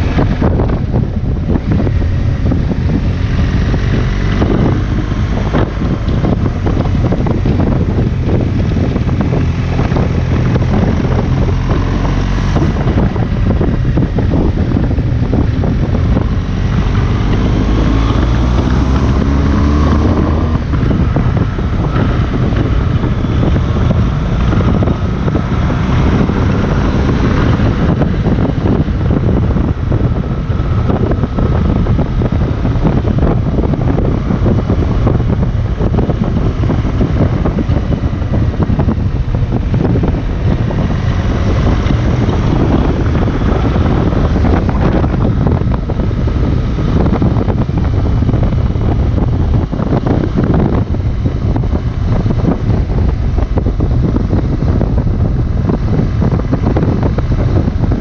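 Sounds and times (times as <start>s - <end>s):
motorcycle engine running: 0.0s - 58.0s
wind noise on microphone: 0.0s - 58.0s.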